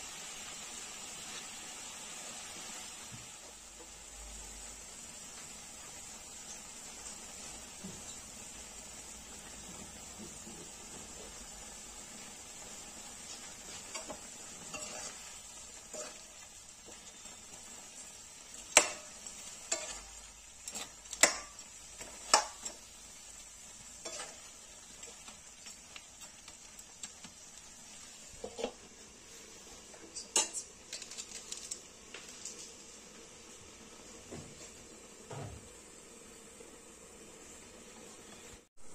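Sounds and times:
noodles sizzling in a pan: 0:00.0 - 0:38.9
spoon scraping and clinking pan: 0:13.9 - 0:16.4, 0:18.7 - 0:22.8, 0:24.0 - 0:24.5.

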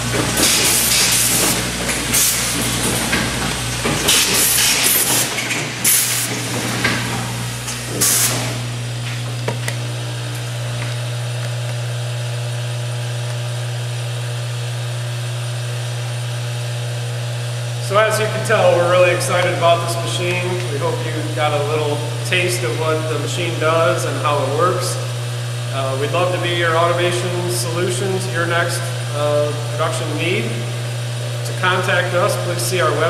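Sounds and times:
mechanical clunks: 0:00.0 - 0:11.0
machine hum: 0:00.0 - 0:33.0
pneumatic air hiss bursts: 0:00.4 - 0:02.7, 0:04.1 - 0:06.4, 0:07.6 - 0:08.6.

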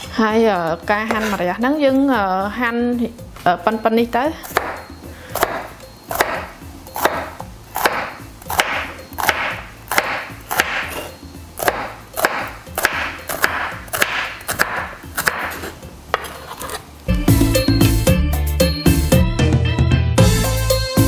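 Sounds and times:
knife slicing melon: 0:05.4 - 0:16.8.

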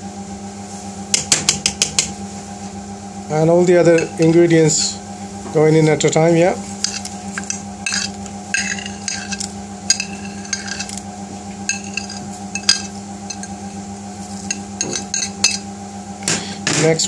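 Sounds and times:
steady low hum: 0:00.0 - 0:17.0
bowl clinking against steel pot: 0:06.8 - 0:11.0.

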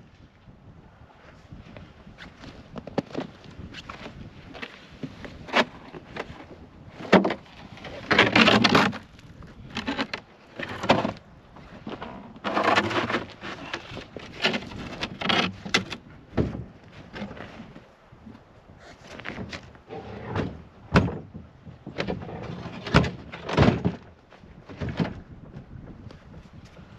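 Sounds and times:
wood scraping on ice: 0:02.9 - 0:16.0, 0:18.8 - 0:21.3, 0:21.9 - 0:24.1
wooden knocks and clatters: 0:19.2 - 0:25.7.

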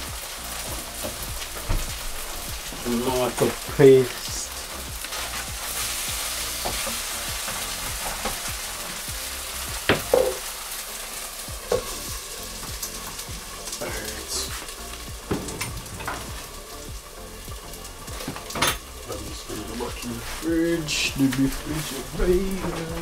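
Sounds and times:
sauce sizzling in a frying pan: 0:00.0 - 0:23.0
utensil knocking on pan: 0:09.8 - 0:10.4.

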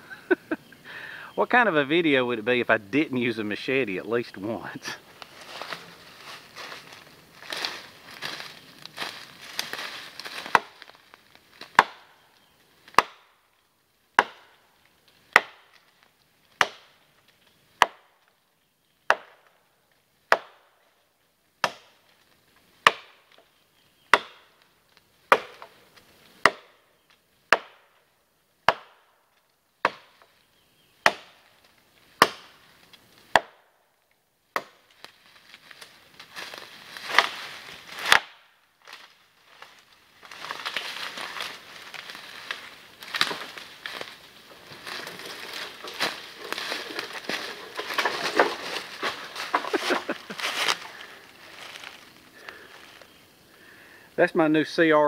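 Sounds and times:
leaves rustling underfoot: 0:01.4 - 0:13.7, 0:14.7 - 0:17.7, 0:34.0 - 0:53.6
machete chopping into log: 0:10.3 - 0:10.8, 0:11.7 - 0:12.1, 0:12.9 - 0:13.3, 0:14.2 - 0:14.6, 0:15.4 - 0:15.8, 0:16.6 - 0:17.0, 0:20.3 - 0:20.7, 0:21.6 - 0:22.0, 0:22.8 - 0:23.2, 0:24.2 - 0:24.5, 0:25.3 - 0:25.7, 0:26.4 - 0:26.8, 0:27.5 - 0:27.9, 0:28.7 - 0:29.0, 0:29.9 - 0:30.2, 0:31.1 - 0:31.4, 0:32.2 - 0:32.6, 0:33.3 - 0:33.6, 0:34.6 - 0:34.8, 0:38.0 - 0:38.5.

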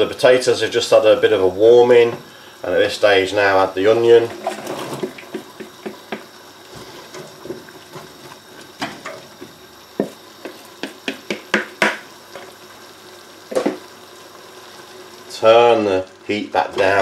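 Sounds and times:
wooden spatula knocking on pots: 0:05.0 - 0:06.3, 0:08.8 - 0:12.5.

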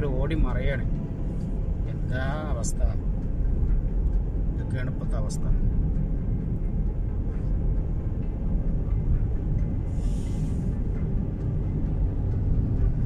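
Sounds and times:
road rumble inside moving car: 0:00.0 - 0:13.0
brief hiss: 0:09.9 - 0:10.7.

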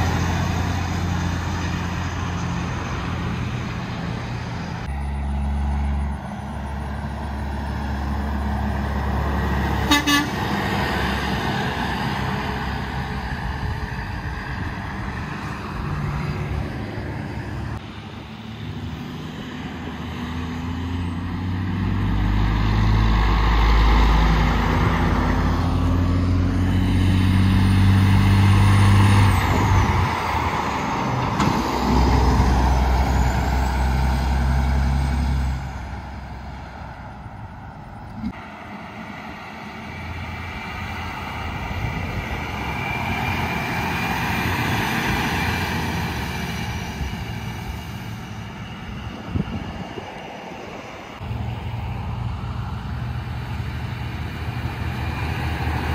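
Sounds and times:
road and tyre noise: 0:00.0 - 0:55.9
trucks passing on highway: 0:00.0 - 0:55.9
truck horn toot: 0:09.8 - 0:10.5.

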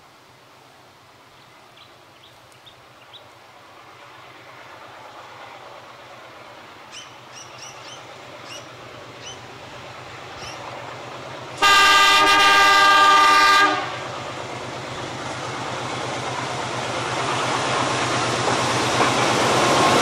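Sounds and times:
diesel locomotive engine hum: 0:00.0 - 0:20.0
birds chirping: 0:01.3 - 0:03.4, 0:06.8 - 0:09.6, 0:10.3 - 0:10.8.

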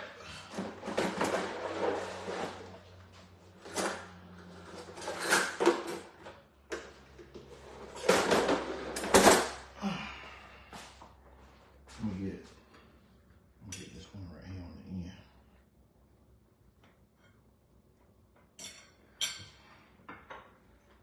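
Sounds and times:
kitchen rustles bumps and clatters: 0:00.0 - 0:09.7.

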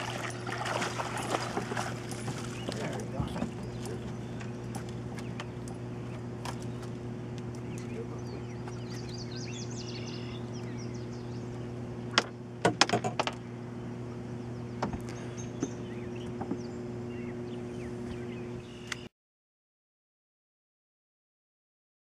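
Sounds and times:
knocks and clatters in boat: 0:00.0 - 0:09.1, 0:12.1 - 0:13.4, 0:14.8 - 0:16.7
steady low hum: 0:00.0 - 0:19.1
bird chirps: 0:07.6 - 0:11.8, 0:13.8 - 0:19.1.

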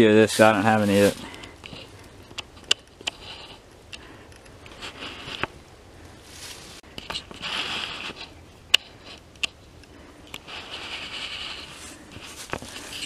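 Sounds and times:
footsteps through dry grass: 0:00.0 - 0:02.3, 0:04.6 - 0:09.2, 0:10.4 - 0:13.0.

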